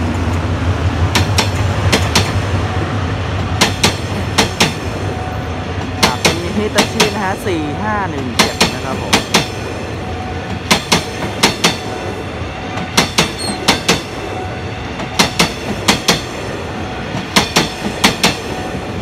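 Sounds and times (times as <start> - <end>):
train rumble: 0.0 - 19.0
train wheels clacking over rail joint: 1.1 - 2.4, 3.6 - 4.9, 10.6 - 11.8, 12.8 - 14.1, 15.0 - 16.3, 17.2 - 18.4.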